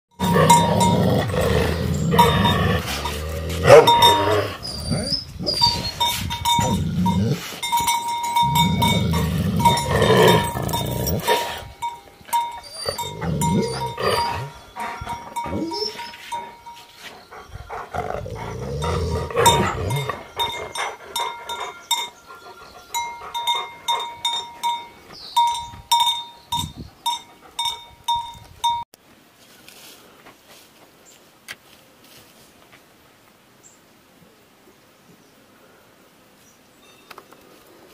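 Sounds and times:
small bell ringing: 0:00.1 - 0:04.5, 0:05.6 - 0:17.0, 0:18.8 - 0:28.9
dogs growling: 0:00.2 - 0:05.7, 0:06.5 - 0:07.6, 0:08.2 - 0:16.6, 0:17.2 - 0:24.6.

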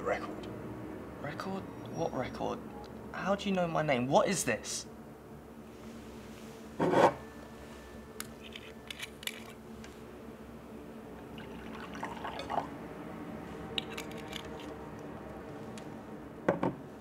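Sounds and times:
wine pouring into a glass: 0:11.3 - 0:12.7.

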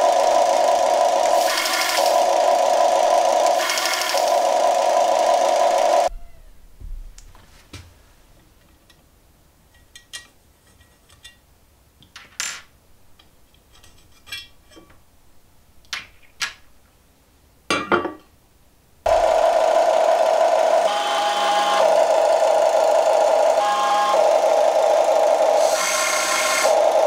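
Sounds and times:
electronic engine sound: 0:00.0 - 0:06.1, 0:19.1 - 0:27.0.

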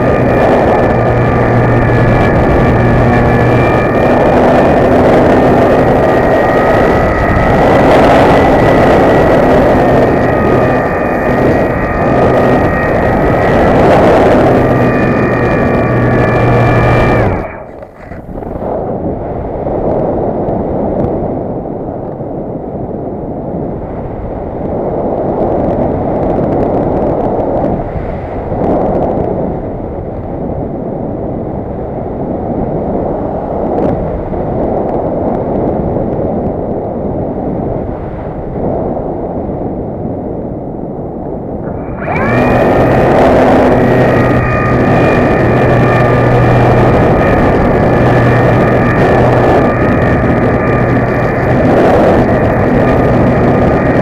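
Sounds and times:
propeller motor whining: 0:00.0 - 0:19.2, 0:41.6 - 0:54.0
wind buffeting a microphone: 0:00.0 - 0:54.0.

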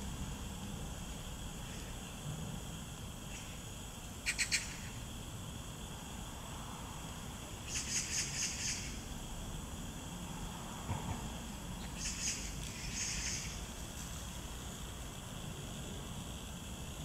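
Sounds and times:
outdoor background hiss: 0:00.0 - 0:17.0
high rapid chirping calls: 0:04.2 - 0:05.0, 0:07.7 - 0:09.0, 0:11.8 - 0:13.6.

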